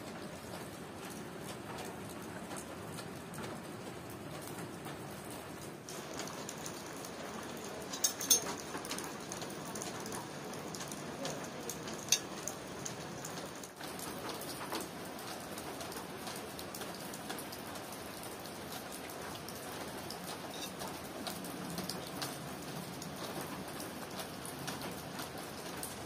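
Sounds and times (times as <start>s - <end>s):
steady rain falling: 0.0s - 26.0s
metal spoons clinking ceramic bowls: 7.9s - 8.6s, 20.5s - 20.8s.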